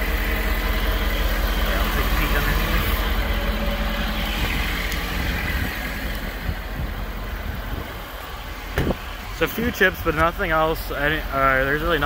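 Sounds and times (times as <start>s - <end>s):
pickup engine idling: 0.0s - 12.0s.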